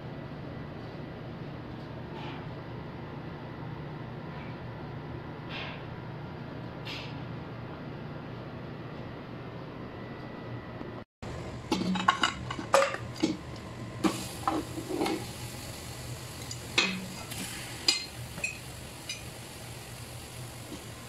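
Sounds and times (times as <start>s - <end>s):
plate and metal pot clattering: 11.7s - 13.0s.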